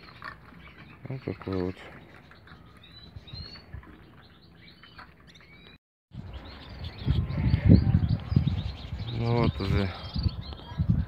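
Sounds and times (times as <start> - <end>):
small songbirds chirping: 0.0 - 11.0.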